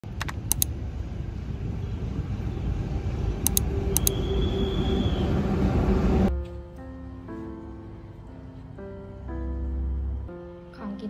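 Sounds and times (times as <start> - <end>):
train rumbling along tracks: 0.0 - 6.3
sharp clicks: 0.2 - 0.7, 3.4 - 4.2.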